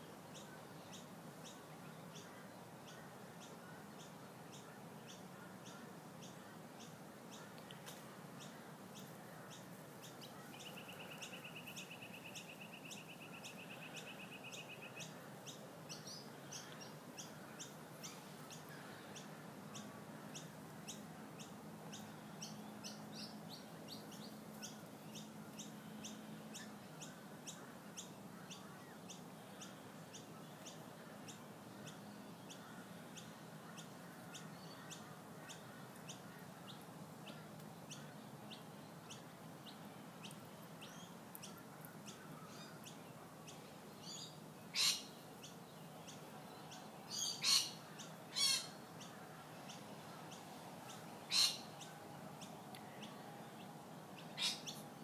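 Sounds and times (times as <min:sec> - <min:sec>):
faint birds chirping: 0:00.0 - 0:55.0
brief bird calls: 0:44.0 - 0:45.2, 0:47.1 - 0:49.2, 0:51.3 - 0:52.0, 0:54.2 - 0:54.8
bird trill: 0:44.0 - 0:45.6, 0:46.7 - 0:48.8, 0:51.3 - 0:52.0, 0:54.2 - 0:54.8.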